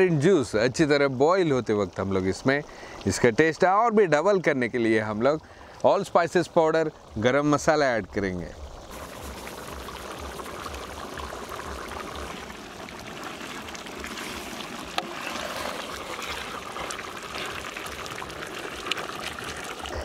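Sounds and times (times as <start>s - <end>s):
pot of gravy bubbling: 6.4s - 20.0s
ladle stirring: 12.2s - 20.0s.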